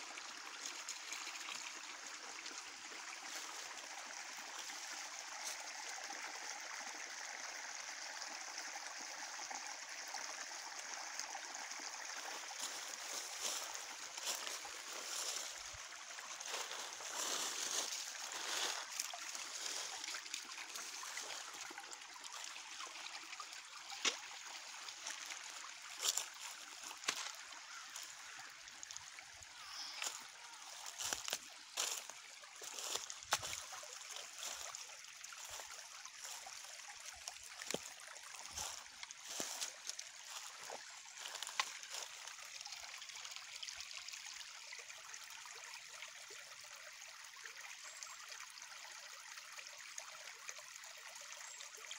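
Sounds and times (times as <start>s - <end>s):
creek trickling: 0.0s - 51.9s
footsteps crunching dry leaves: 12.2s - 21.6s, 25.0s - 28.0s, 29.8s - 36.6s, 37.2s - 42.3s.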